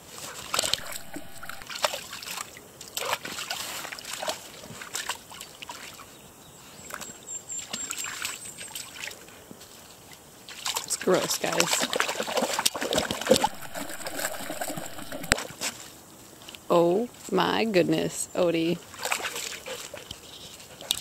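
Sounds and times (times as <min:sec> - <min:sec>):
dogs splashing in puddle: 0:00.3 - 0:06.0, 0:10.5 - 0:15.2, 0:18.8 - 0:20.1.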